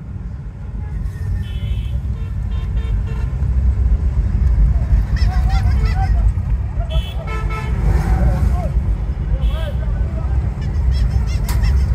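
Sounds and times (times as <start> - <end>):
vehicle rumble and traffic: 0.0 - 11.9
vehicle horns tooting: 0.6 - 3.5, 5.0 - 8.1, 9.4 - 11.9.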